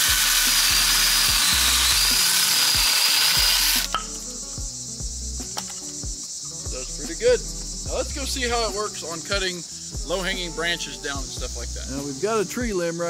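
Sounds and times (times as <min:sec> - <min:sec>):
chainsaw cutting a branch: 0:00.0 - 0:04.2
crickets chirping: 0:00.0 - 0:13.0.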